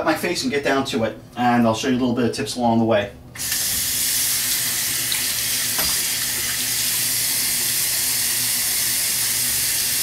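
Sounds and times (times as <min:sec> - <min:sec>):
water running from a tap: 0:03.4 - 0:10.0.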